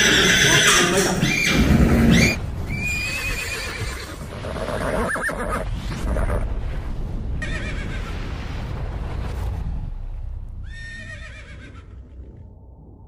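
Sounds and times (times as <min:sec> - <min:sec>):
horse whinnying: 0:00.0 - 0:05.6, 0:10.7 - 0:12.0
steady low rumble: 0:05.6 - 0:13.0.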